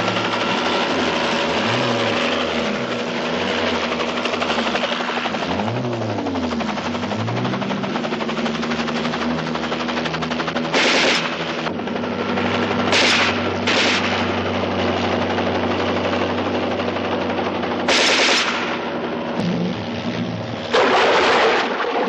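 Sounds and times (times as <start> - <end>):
aircraft engines droning: 0.0 - 22.0
machine-gun fire: 10.3 - 11.7, 12.3 - 14.5, 17.8 - 19.8, 20.7 - 22.0.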